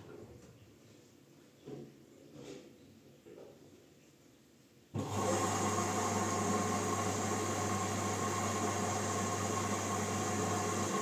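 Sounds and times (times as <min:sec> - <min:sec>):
washing machine electric hum: 0:05.0 - 0:11.0.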